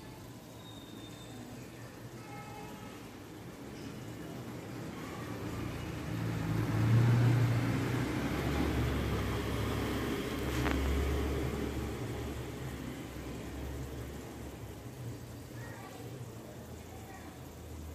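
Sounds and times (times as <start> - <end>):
passing vehicle engine rumble: 4.1 - 14.8.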